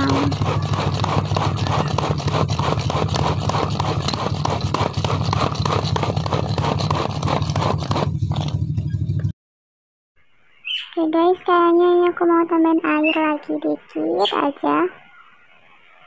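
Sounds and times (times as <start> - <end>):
manual food chopper clattering: 0.0 - 8.7.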